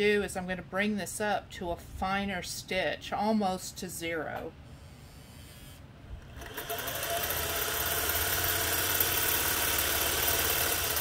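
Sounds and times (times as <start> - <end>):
sewing machine running: 6.3 - 11.0.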